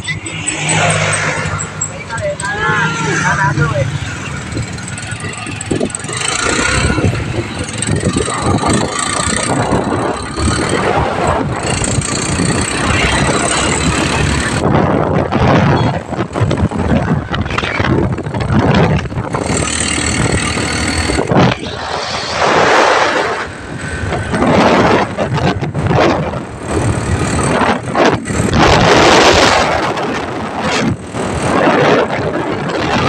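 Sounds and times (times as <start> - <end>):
tricycle engine running: 0.0 - 21.8, 23.4 - 33.0
wind rushing past microphone: 0.0 - 33.0.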